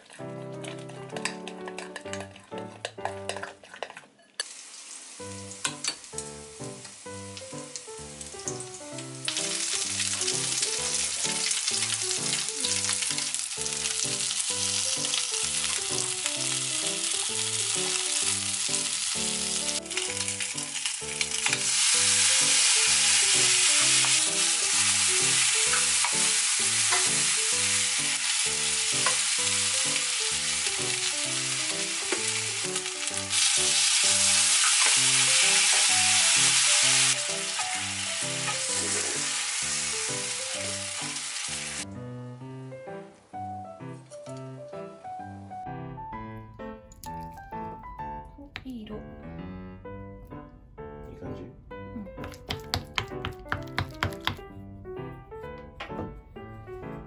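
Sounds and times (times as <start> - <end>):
background music: 0.0 - 3.7, 5.1 - 57.0
peppers sizzling in a frying pan: 0.0 - 42.0, 52.2 - 54.4.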